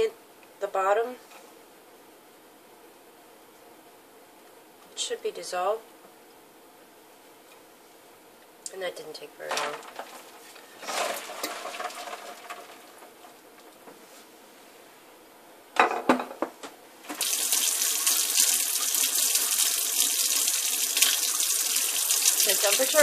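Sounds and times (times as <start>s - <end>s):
water running into steel sink: 10.8s - 13.1s, 17.1s - 23.0s.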